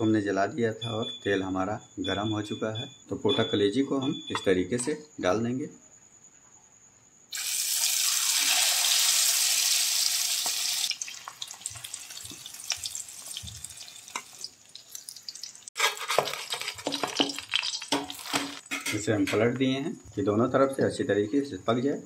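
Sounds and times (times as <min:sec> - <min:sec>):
meat sizzling in hot oil: 0:07.3 - 0:18.7.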